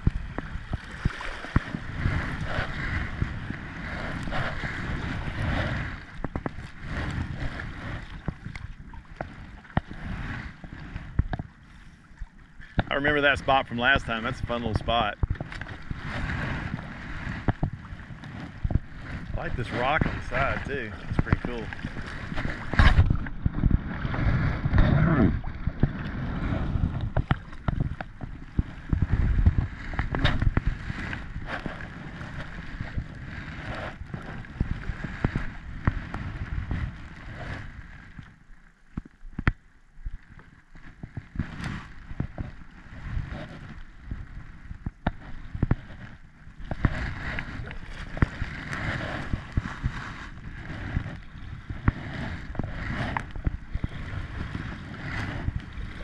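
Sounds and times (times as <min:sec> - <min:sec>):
wind buffeting microphone: 0:00.0 - 0:38.3, 0:40.9 - 0:56.0
paddle strokes splashing in water: 0:00.0 - 0:56.0.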